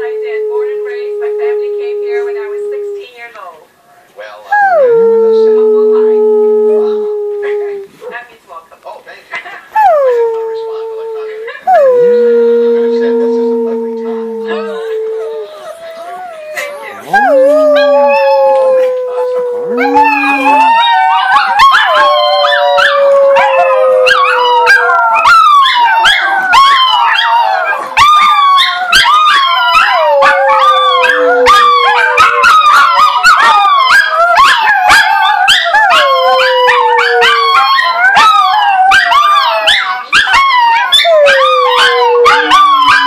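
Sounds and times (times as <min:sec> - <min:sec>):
small dogs howling: 0:00.0 - 0:03.3, 0:04.6 - 0:07.9, 0:09.8 - 0:43.0
dogs yipping: 0:14.0 - 0:43.0.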